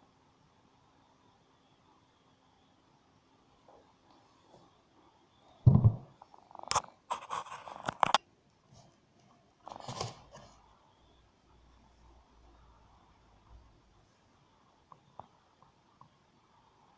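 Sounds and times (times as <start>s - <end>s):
dull thump: 5.7s - 6.1s
soft knock: 5.7s - 6.1s
cardboard scraping and crinkling: 9.7s - 10.6s.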